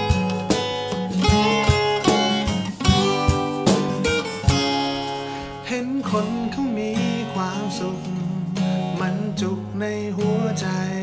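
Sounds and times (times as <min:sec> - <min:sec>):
acoustic guitars strummed: 0:00.0 - 0:11.0
man singing: 0:05.5 - 0:11.0.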